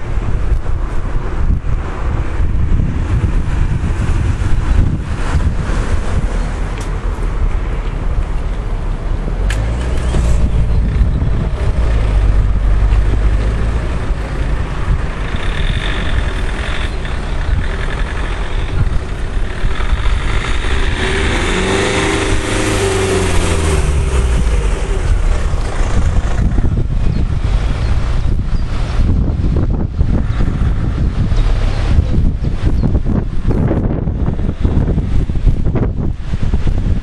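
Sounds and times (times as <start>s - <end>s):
vehicle engine hum passing by: 0.0s - 37.0s
wind rumble on microphone: 0.0s - 37.0s.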